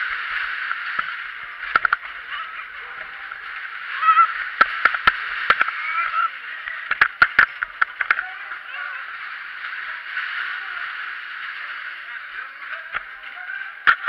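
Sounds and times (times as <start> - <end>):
sharp clacks and knocks: 0.7 - 2.2, 4.6 - 5.8, 6.9 - 8.2.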